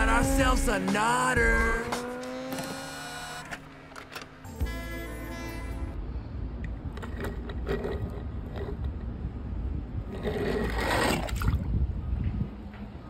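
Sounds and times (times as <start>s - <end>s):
wind rumble on microphone: 6.0s - 13.0s
toy car scraping down a slide: 7.0s - 8.9s, 10.1s - 11.3s.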